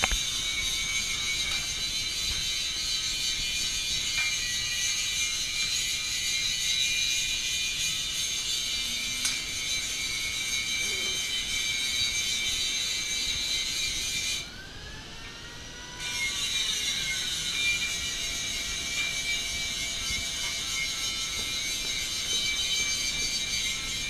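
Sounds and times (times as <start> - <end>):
air hissing through forge coals: 0.0 - 24.0.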